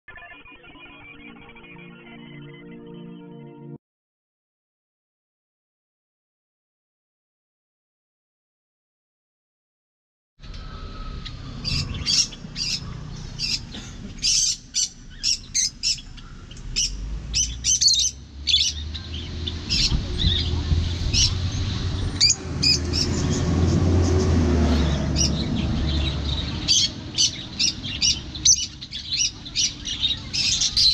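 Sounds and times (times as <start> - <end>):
birds chirping shrilly: 10.4 - 30.9
road traffic rumble: 10.4 - 30.9.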